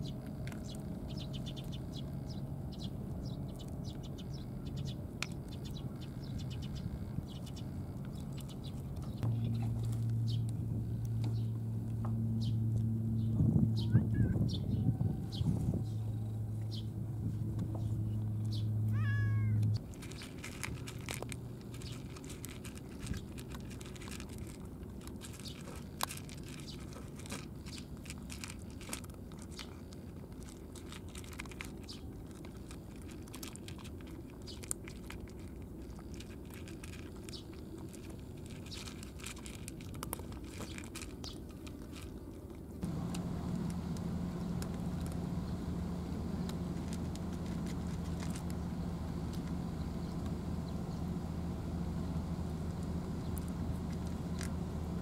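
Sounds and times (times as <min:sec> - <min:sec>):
cats crunching dry kibble: 0:00.0 - 0:13.0, 0:15.4 - 0:55.0
steady low hum: 0:00.0 - 0:19.0, 0:42.7 - 0:55.0
cat meowing: 0:18.9 - 0:19.6.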